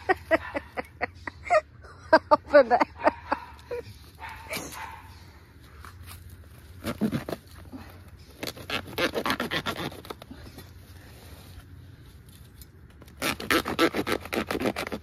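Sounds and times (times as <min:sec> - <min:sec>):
plastic pot scratching: 0:06.0 - 0:11.6, 0:13.0 - 0:15.0.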